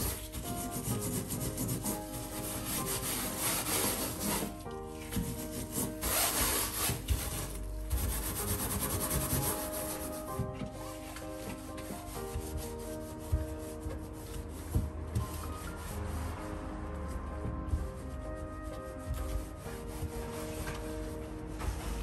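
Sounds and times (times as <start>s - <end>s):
scouring pad scrubbing metal hob: 0.0s - 16.4s.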